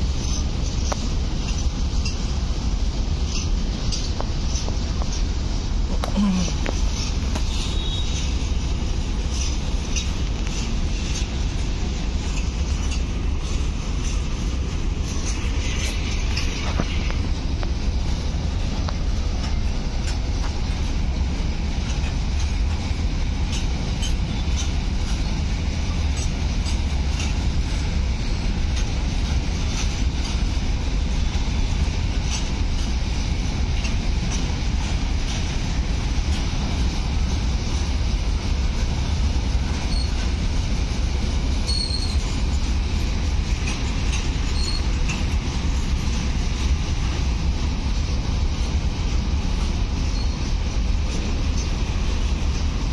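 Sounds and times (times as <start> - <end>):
freight train rumbling: 0.0 - 52.9
wheels clanking over rail: 0.0 - 52.9
high wheel squeaks: 6.2 - 8.4, 39.8 - 40.3, 41.6 - 42.6, 43.6 - 45.3, 50.0 - 50.6.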